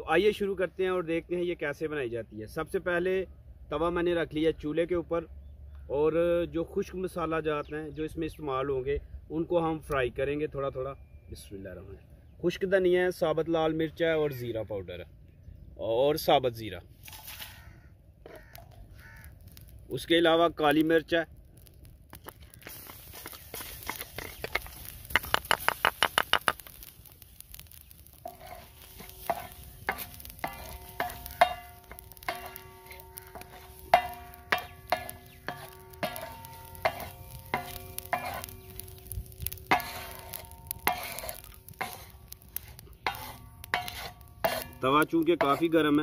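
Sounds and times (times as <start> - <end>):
spatula scraping spices on iron: 17.0 - 19.4, 22.5 - 46.0
sharp clicks: 23.9 - 28.2
iron plate ringing: 28.3 - 46.0.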